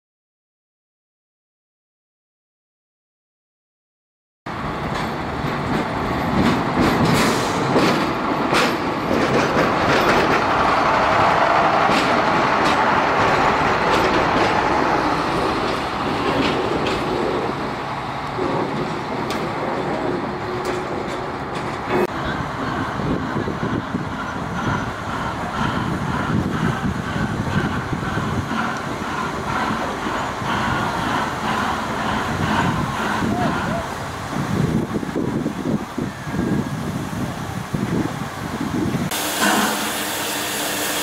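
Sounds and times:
diesel railcar engine running: 0:04.5 - 0:41.0
wheels clicking over rail joints: 0:04.8 - 0:35.1.

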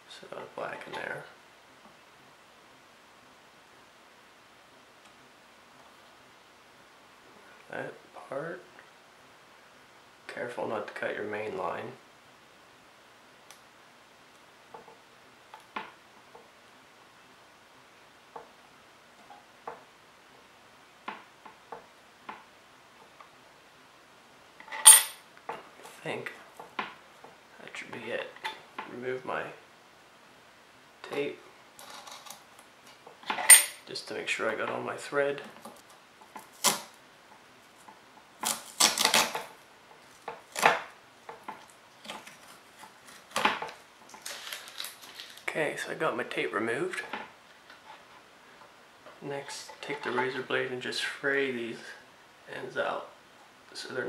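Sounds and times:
sharp ringing clink: 0:24.8 - 0:25.2, 0:33.5 - 0:33.8
tape ripping: 0:36.4 - 0:37.0, 0:38.4 - 0:39.5, 0:42.0 - 0:45.5.

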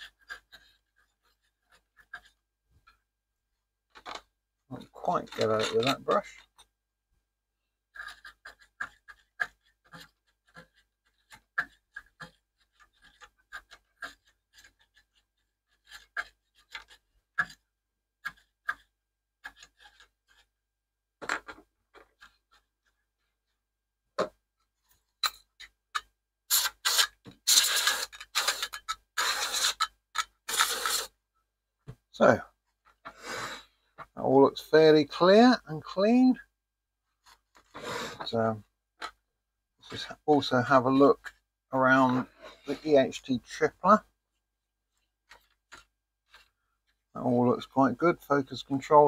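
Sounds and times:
small brush scrubbing: 0:26.5 - 0:31.2.

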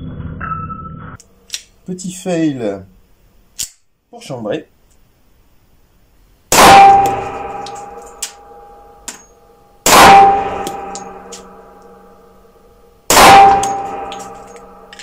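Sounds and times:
pistol shots with metallic ringing: 0:06.5 - 0:15.0.

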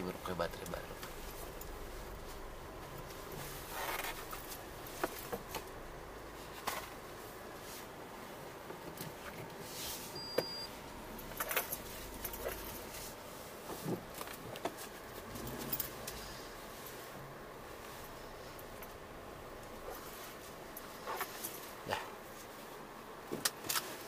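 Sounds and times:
short electronic beep: 0:10.2 - 0:10.8.

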